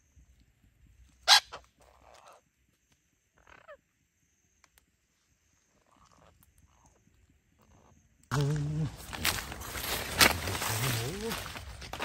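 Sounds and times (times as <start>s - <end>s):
parrots shrieking and squawking: 1.2s - 2.4s, 3.4s - 3.8s.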